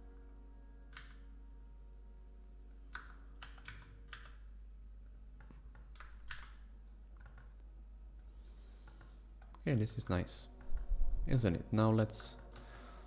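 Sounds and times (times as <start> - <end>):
low steady hum: 0.0 - 13.0
computer keyboard keystrokes: 0.9 - 1.2, 2.9 - 4.5, 5.4 - 6.6, 7.2 - 7.7, 8.8 - 10.9.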